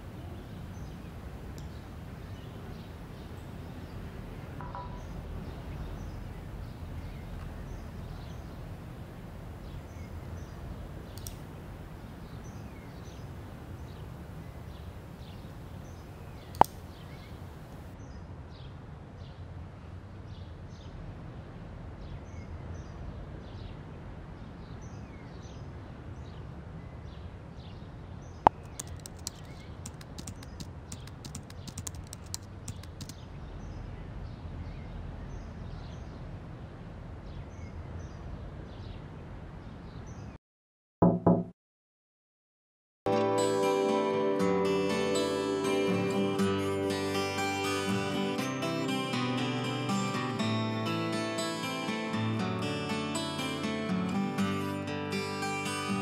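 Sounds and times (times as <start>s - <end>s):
small birds chirping: 0.0s - 17.9s, 28.4s - 33.8s
single sharp clicks: 11.1s - 11.4s, 16.5s - 17.3s
laptop keyboard typing: 28.5s - 33.2s.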